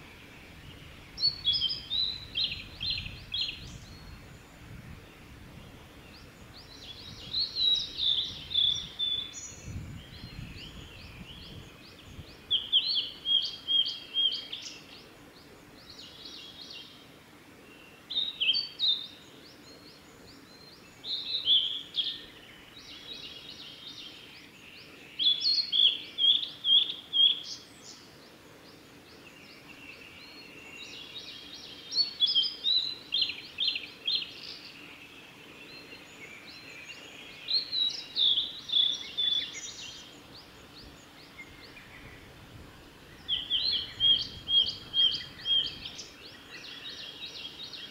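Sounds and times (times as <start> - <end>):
bird singing high whistled notes: 0.7 - 4.3, 6.6 - 15.0, 25.2 - 28.0, 35.7 - 40.2, 43.1 - 47.9.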